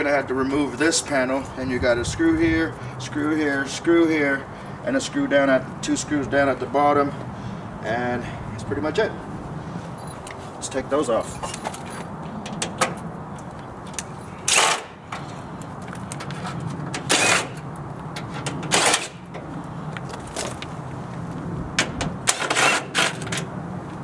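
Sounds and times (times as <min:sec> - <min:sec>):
metallic rattles and clanks: 0:11.1 - 0:13.1, 0:16.0 - 0:19.5.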